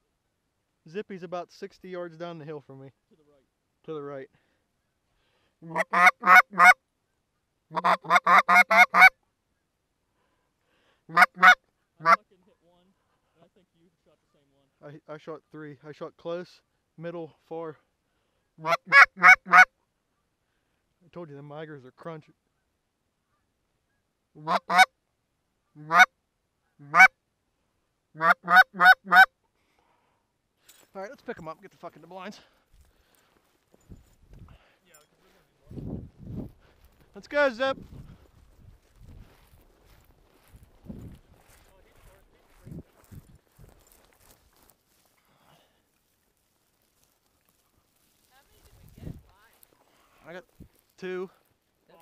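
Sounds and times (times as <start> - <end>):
goose honks: 5.6 - 6.8, 7.7 - 9.2, 11.1 - 12.2, 18.6 - 19.7, 24.4 - 24.9, 25.8 - 26.1, 26.8 - 27.2, 28.2 - 29.3.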